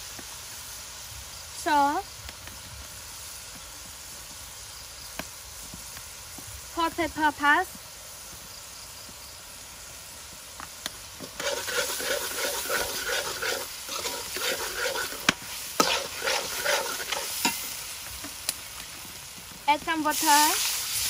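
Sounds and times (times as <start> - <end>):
faint sizzle: 0.0 - 21.0
metal spatula scraping a wok: 11.2 - 18.0.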